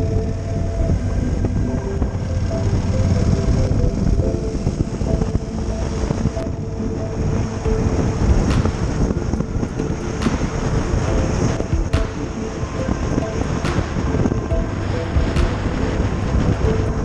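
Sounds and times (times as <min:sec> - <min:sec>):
wind rush: 0:00.0 - 0:17.0.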